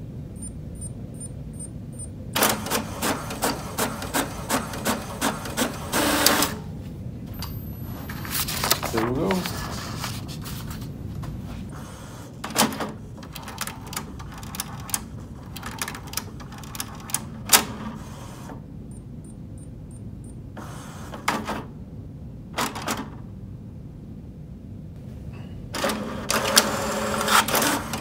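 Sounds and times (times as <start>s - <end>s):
inkjet printer mechanism clicking: 12.4s - 17.7s.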